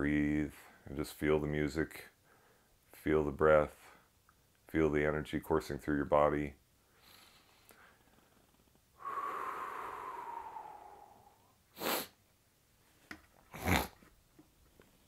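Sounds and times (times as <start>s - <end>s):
faint whistling tone: 9.0s - 11.6s
man breathing out: 9.0s - 12.2s
sharp sniff: 9.0s - 12.2s.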